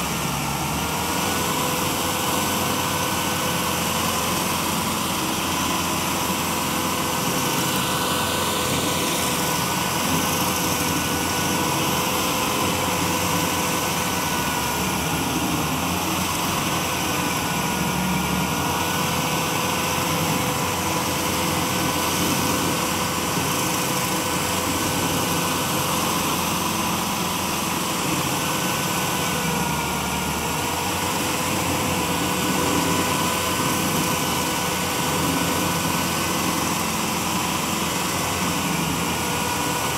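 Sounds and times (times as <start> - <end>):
cutter wheel whine: 0.0 - 39.9
stump grinder engine drone: 0.0 - 39.9.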